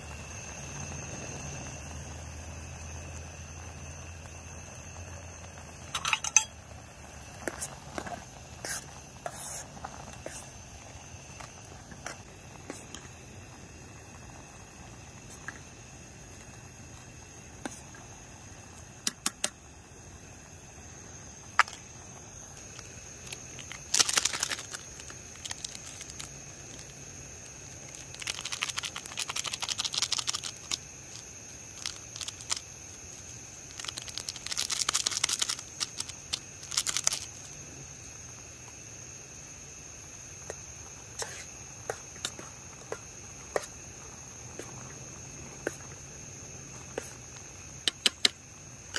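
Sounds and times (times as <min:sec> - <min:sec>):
metal spoon clinking against pot: 0:06.0 - 0:06.6
plastic sachet crinkling: 0:22.7 - 0:27.0, 0:27.7 - 0:37.5.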